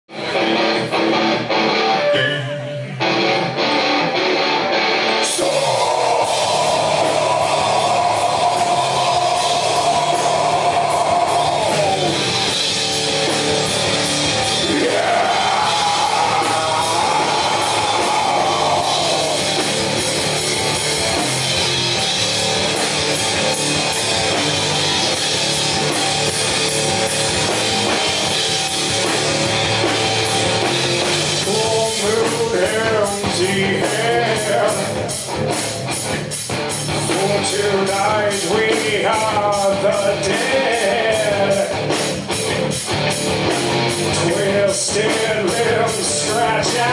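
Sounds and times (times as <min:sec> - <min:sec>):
live rock band playing: 0:00.0 - 0:46.9.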